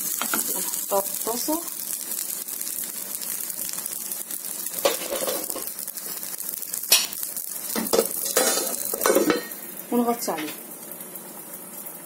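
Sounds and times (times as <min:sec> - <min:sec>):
flatbread sizzling in a frying pan: 0:00.0 - 0:12.0.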